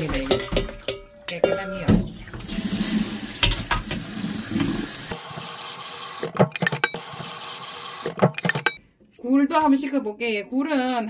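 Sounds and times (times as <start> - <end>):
tap water pouring into colander: 1.9 - 6.2.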